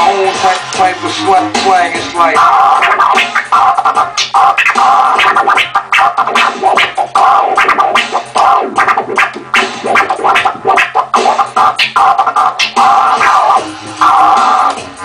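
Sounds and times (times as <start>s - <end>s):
turntable scratching: 0.0s - 15.0s.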